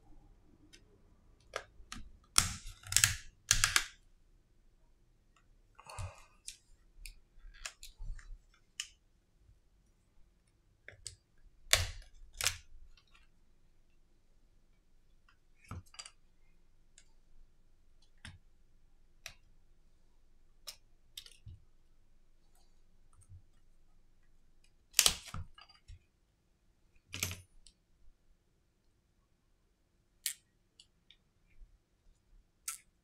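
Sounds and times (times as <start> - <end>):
plastic parts clicking and tapping: 1.4 - 4.0.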